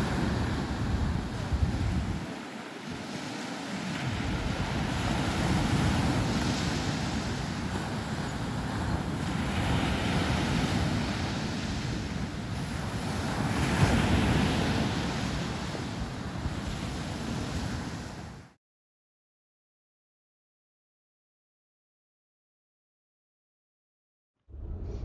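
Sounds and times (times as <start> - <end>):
sea surf breaking on beach: 0.0 - 18.6
wind rumbling on microphone: 0.0 - 18.6, 24.5 - 25.0.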